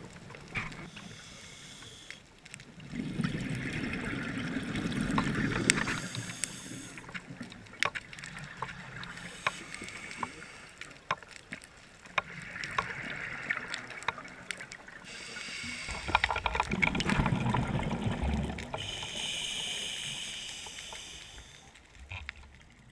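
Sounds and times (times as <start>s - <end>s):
regulator inhale hissing: 0.8s - 2.2s, 5.4s - 7.2s, 9.1s - 11.0s, 15.0s - 16.3s, 18.7s - 21.8s.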